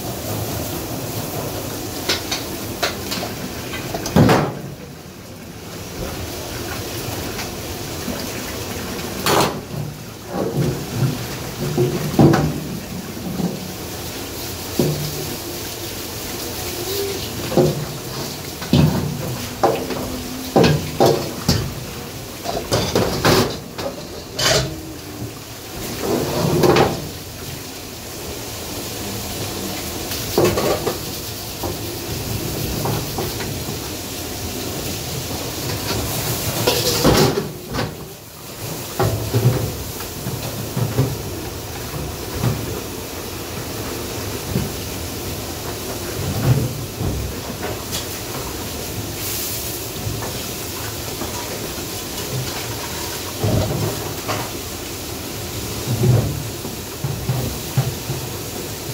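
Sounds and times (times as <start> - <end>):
steady hiss: 0.0 - 58.9
dishes pots and cutlery clinking: 17.4 - 21.8, 22.4 - 25.1, 36.6 - 37.9.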